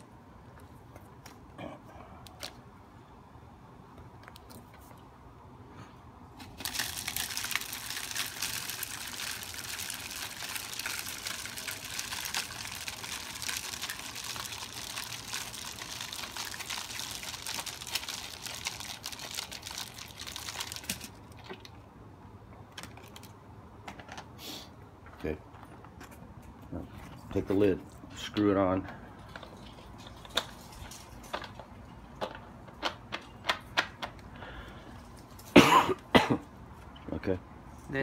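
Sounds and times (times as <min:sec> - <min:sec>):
seed pouring through plastic funnel: 0:06.4 - 0:21.4.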